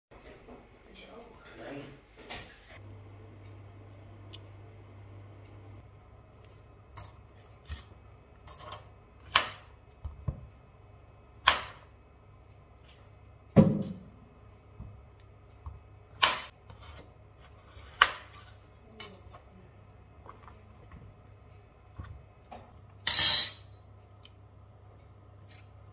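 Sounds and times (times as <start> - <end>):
utensils and dishes clinking: 23.0 - 23.8.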